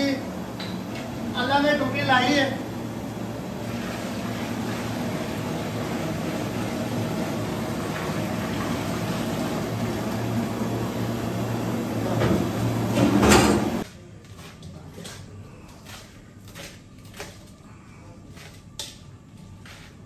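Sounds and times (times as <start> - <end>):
gas burner rushing hum: 0.0 - 13.9.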